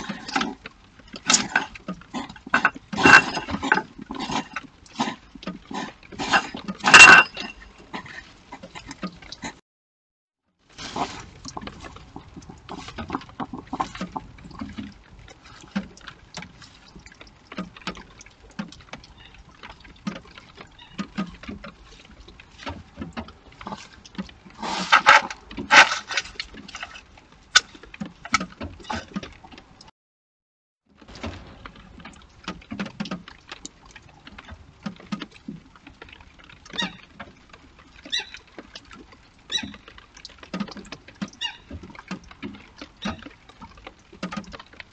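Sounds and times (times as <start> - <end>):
hedgehogs scuffling in dry hay: 10.7 - 12.0.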